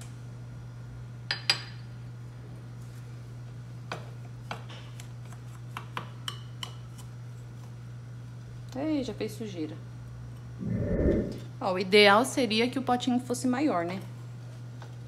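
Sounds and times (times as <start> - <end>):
steady low hum: 10.3 - 11.6.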